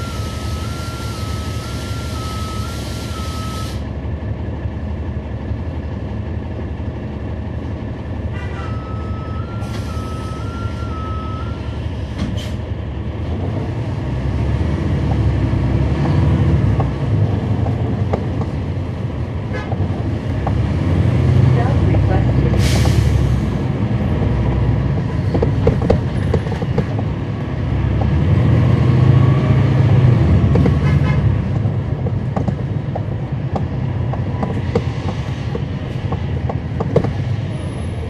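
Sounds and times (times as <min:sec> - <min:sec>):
two-pitch electronic warning tone: 0:00.0 - 0:03.8, 0:08.6 - 0:11.8
diesel bus engine running: 0:00.0 - 0:38.0.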